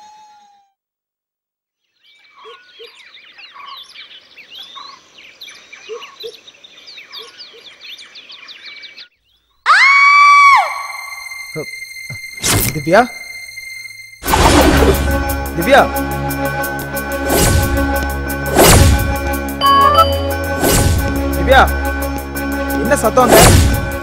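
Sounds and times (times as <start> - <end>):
birds chirping and singing: 1.9 - 9.6
woman screaming: 9.6 - 11.2.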